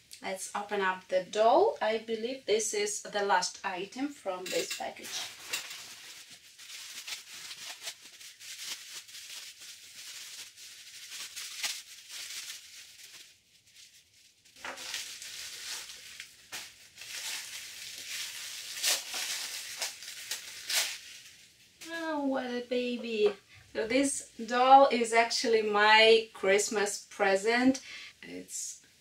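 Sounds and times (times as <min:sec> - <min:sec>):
plastic wrap crinkling: 0:04.4 - 0:22.3.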